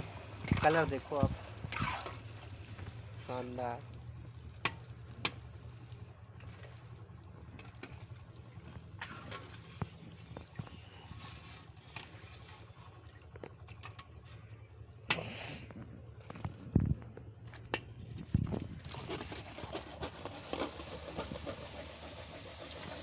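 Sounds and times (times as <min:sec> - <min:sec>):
deep-frying sizzle: 0:00.0 - 0:13.7, 0:20.4 - 0:23.0
low steady hum: 0:00.0 - 0:21.5.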